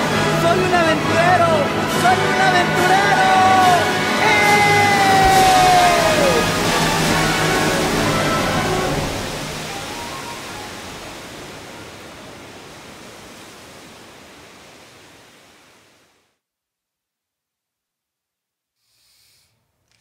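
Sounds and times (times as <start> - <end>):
music: 0.0 - 11.2
ocean surf washing: 0.0 - 16.1.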